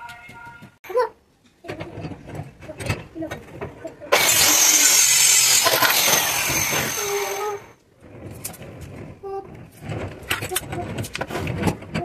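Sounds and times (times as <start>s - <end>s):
circular saw cutting plywood: 4.1s - 9.0s.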